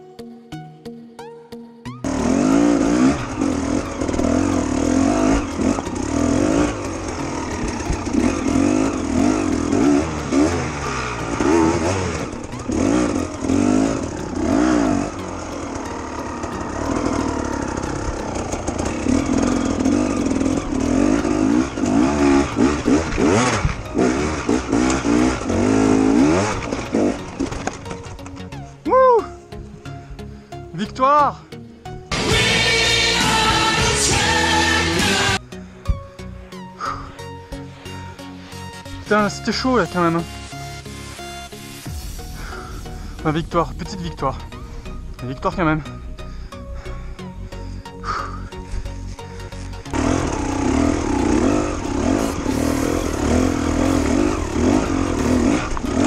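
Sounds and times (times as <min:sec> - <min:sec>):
music: 0:00.0 - 0:56.0
dirt bike engine revving: 0:02.0 - 0:28.2, 0:32.1 - 0:35.4, 0:48.0 - 0:56.0.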